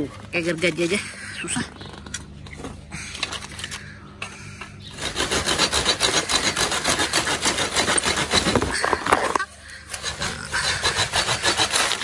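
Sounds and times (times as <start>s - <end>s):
pruning saw rasping through branch: 4.9s - 12.0s.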